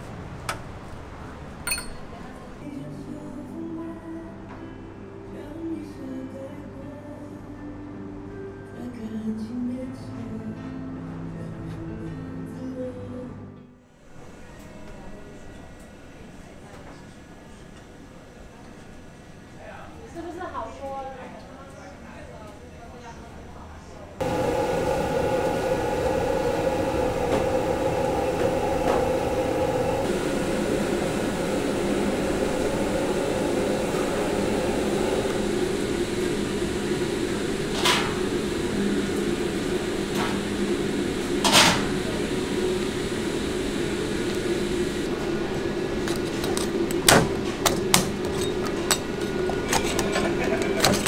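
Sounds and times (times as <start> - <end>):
ventilation hum: 19.3 - 51.0.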